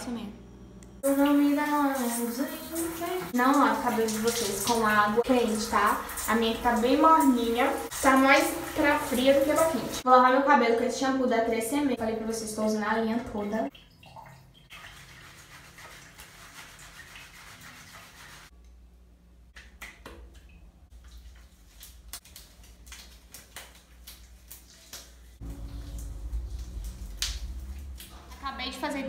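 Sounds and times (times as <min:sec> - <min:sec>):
running water hissing: 0:01.0 - 0:10.0
wet hair squishing: 0:01.9 - 0:10.0, 0:19.7 - 0:29.0.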